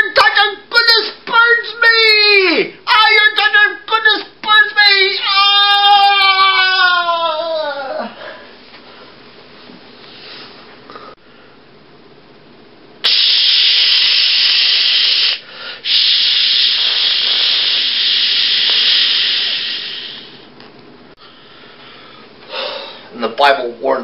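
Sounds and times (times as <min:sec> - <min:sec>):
loud steady hiss: 0:13.0 - 0:20.6.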